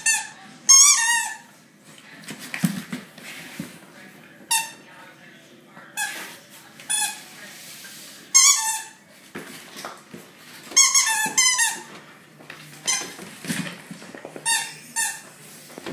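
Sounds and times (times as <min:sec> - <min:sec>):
squeaky toy squeaks: 0:10.8 - 0:11.8.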